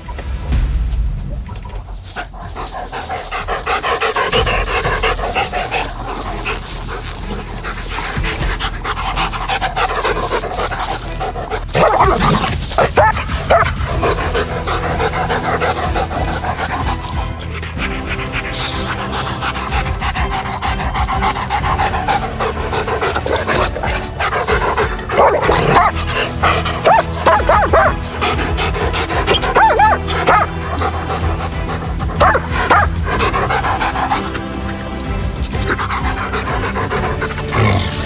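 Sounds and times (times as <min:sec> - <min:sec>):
dogs panting: 0:01.5 - 0:38.0.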